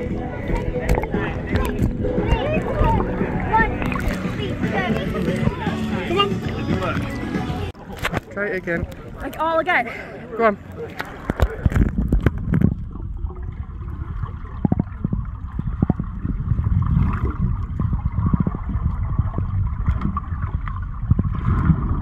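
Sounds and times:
underwater rumble of moving water: 0.0 - 9.4, 10.2 - 22.0
water gurgling: 0.0 - 22.0
small underwater clicks: 0.5 - 2.0.

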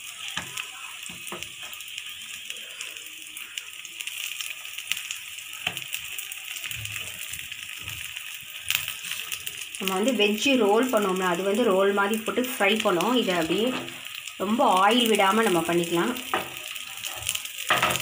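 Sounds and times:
oil sizzling in a pan: 0.0 - 18.0.

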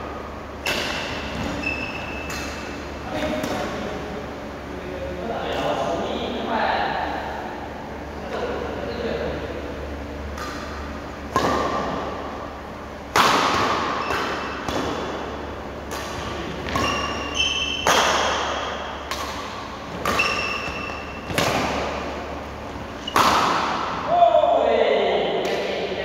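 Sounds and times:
rackets hitting shuttlecock: 0.6 - 3.9, 10.2 - 24.1, 25.4 - 26.0.

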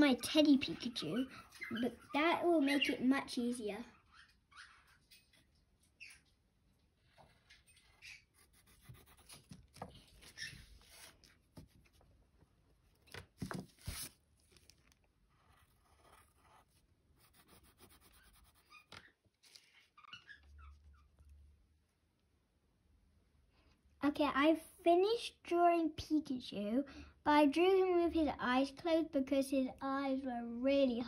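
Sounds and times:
pencil scratching on paper: 7.3 - 12.0, 15.3 - 19.0
paper rustling: 8.8 - 12.2, 12.9 - 16.8, 18.7 - 20.2.

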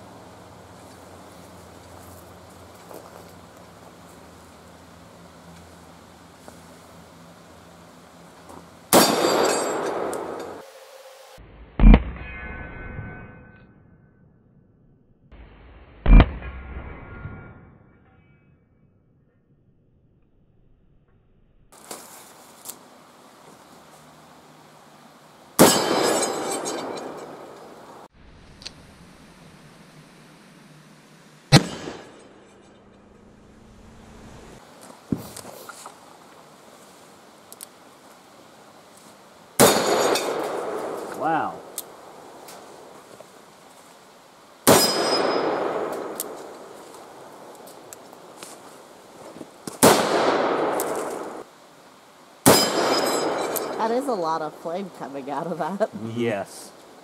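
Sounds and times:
revolver gunshot: 8.9 - 10.6, 11.8 - 12.4, 16.0 - 17.5, 31.5 - 32.2, 39.6 - 41.6, 49.8 - 51.4, 52.5 - 53.6.

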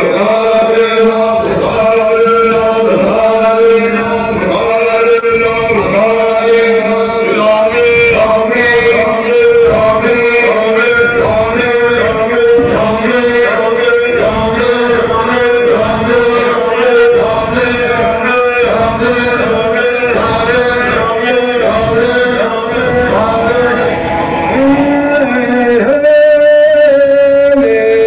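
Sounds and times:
men chanting in chorus: 0.0 - 28.0
held drone: 7.7 - 26.1.

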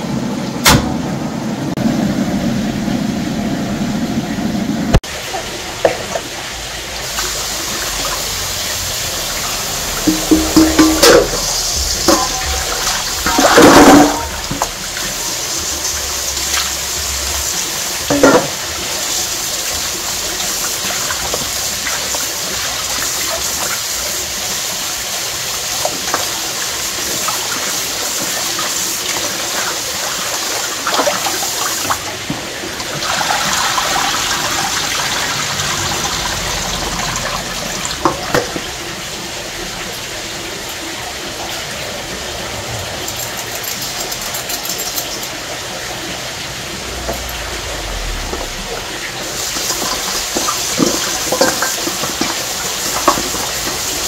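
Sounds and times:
water running: 5.0 - 54.0
knocks and clatters: 10.0 - 14.8, 46.9 - 48.7.

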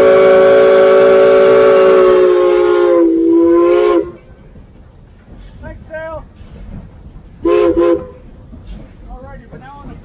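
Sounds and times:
steam locomotive whistle: 0.0 - 4.3, 7.4 - 8.3.

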